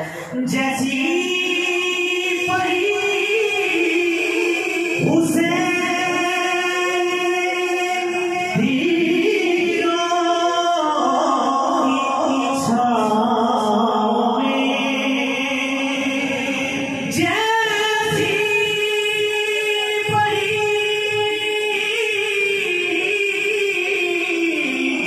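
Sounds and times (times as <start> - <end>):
man singing unaccompanied: 0.0 - 25.0.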